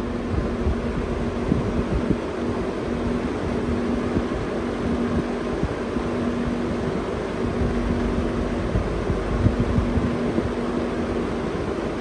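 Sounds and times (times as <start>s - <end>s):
box fan air rush: 0.0s - 12.0s
fan motor hum: 0.0s - 12.0s.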